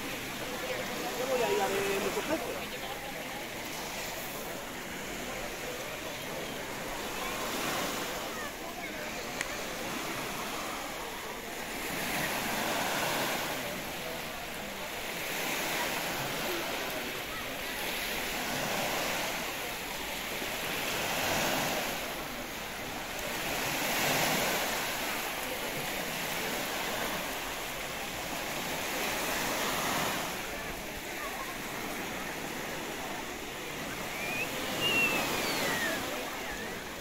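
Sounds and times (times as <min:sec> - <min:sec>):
small waves breaking on beach: 0:00.0 - 0:37.0.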